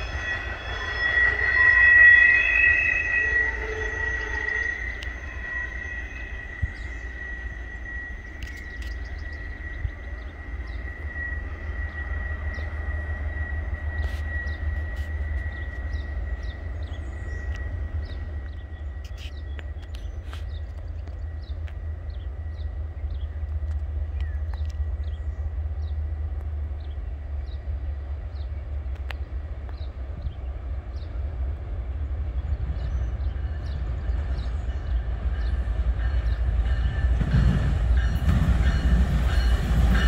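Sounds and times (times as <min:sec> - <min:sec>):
high wheel squeal: 0:00.0 - 0:20.6
birds chirping: 0:00.0 - 0:40.0
distant freight train rumbling: 0:00.0 - 0:40.0.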